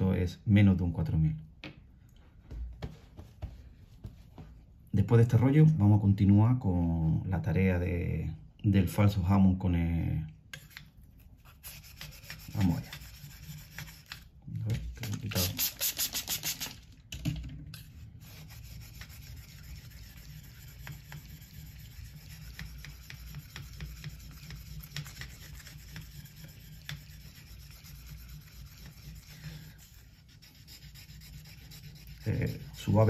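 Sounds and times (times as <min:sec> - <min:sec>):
knife blade rubbing on whetstone: 0:18.2 - 0:33.0.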